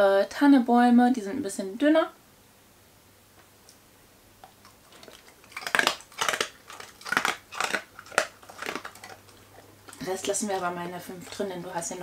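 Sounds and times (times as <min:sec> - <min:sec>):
dog crunching biscuit treats: 0:04.4 - 0:12.0.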